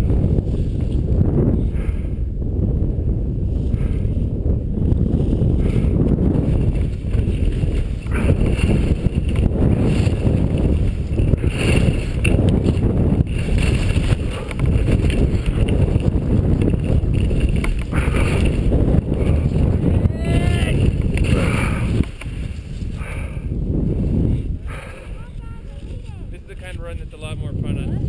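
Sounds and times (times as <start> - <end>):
low wind noise on microphone: 0.0 - 28.0
skis scraping over snow: 6.6 - 19.6.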